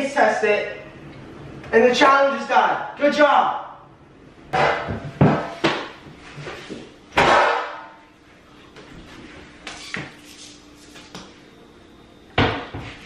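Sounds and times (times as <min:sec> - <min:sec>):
loud ringing bang: 0:04.5 - 0:05.5, 0:07.2 - 0:08.0.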